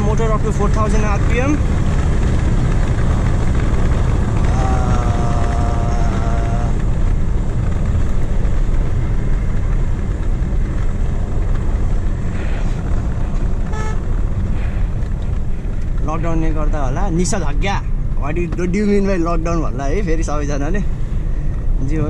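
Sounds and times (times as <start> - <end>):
car engine and road noise: 0.0 - 22.0
car horn: 13.7 - 14.2.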